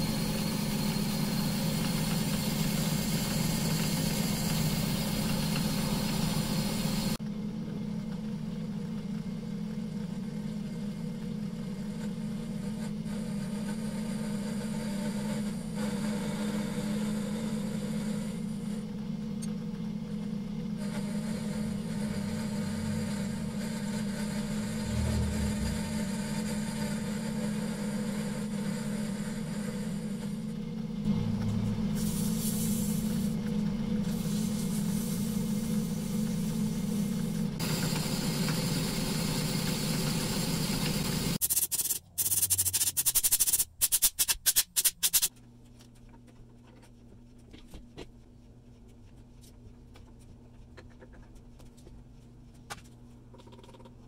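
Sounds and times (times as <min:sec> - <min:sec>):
motor hum: 0:00.0 - 0:43.6
small parts clicking: 0:41.4 - 0:45.4.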